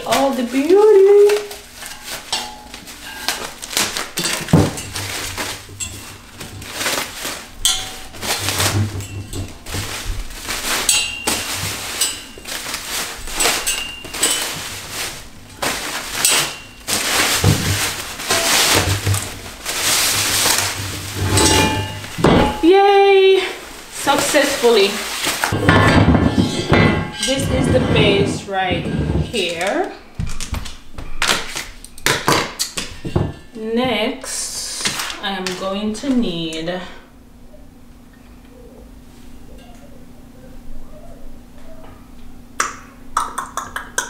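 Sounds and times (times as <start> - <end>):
plastic wrap crinkling and tearing: 0.0 - 25.6, 29.3 - 32.8, 34.5 - 36.4.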